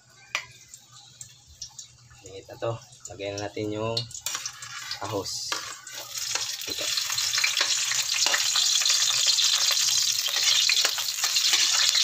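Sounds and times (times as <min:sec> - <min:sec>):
garlic sizzling in oil: 0:03.1 - 0:12.0
metal ladle scraping wok: 0:04.2 - 0:12.0.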